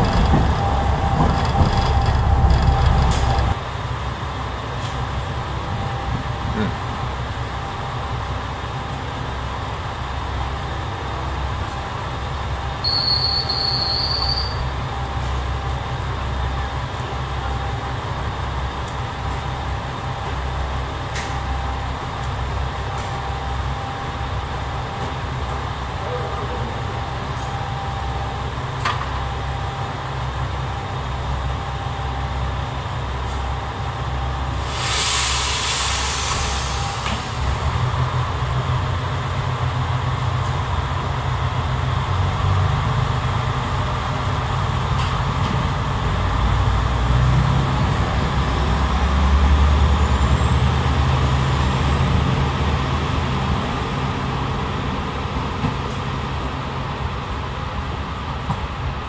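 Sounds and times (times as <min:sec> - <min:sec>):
diesel train engine rumbling: 0:00.0 - 0:59.0
air hiss: 0:34.5 - 0:37.6.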